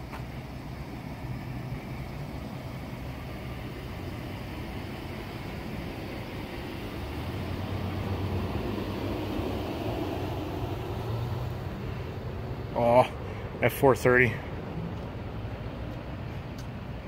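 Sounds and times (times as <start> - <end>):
low rumble of road traffic: 0.0 - 17.0.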